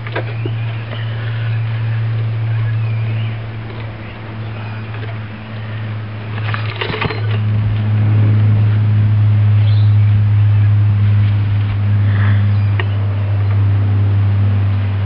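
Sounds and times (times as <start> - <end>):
small petrol engine running: 0.0 - 15.0
brief rattle: 6.3 - 7.8.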